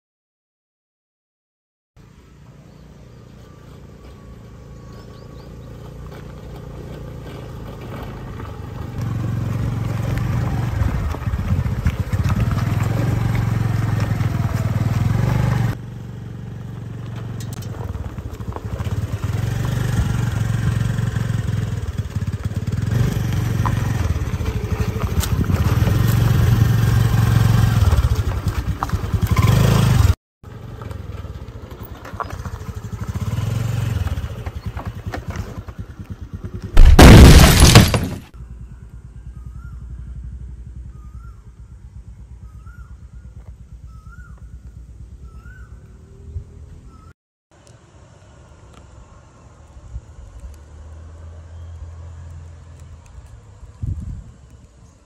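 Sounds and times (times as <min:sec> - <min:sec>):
scooter engine approaching: 0:02.2 - 0:36.8, 0:38.3 - 0:47.2.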